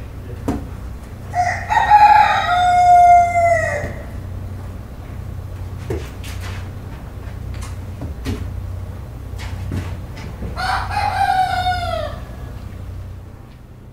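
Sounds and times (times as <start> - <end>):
steady low hum: 0.0 - 13.9
rooster crowing: 1.3 - 4.5, 10.5 - 12.8.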